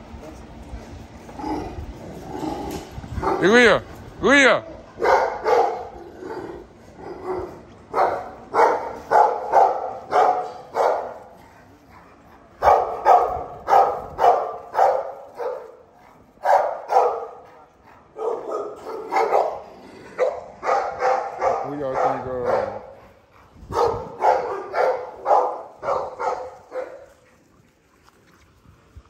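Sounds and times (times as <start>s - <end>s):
dog barking: 5.0s - 6.0s, 7.0s - 11.3s, 12.6s - 27.1s.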